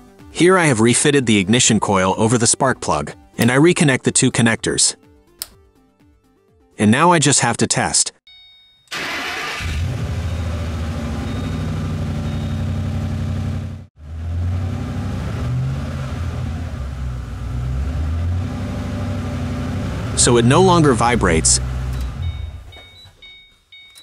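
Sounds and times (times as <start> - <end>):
car engine starting and idling: 8.9 - 24.0.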